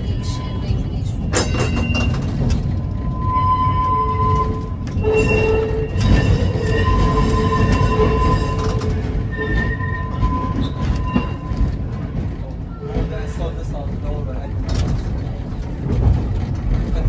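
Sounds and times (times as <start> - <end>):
tram wheels rumbling: 0.0 - 17.0
high squealing tones: 3.0 - 11.9.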